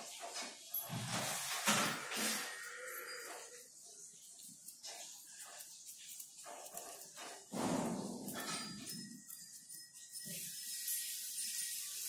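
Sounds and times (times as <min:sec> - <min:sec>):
scissors cutting paper: 0:03.4 - 0:07.6.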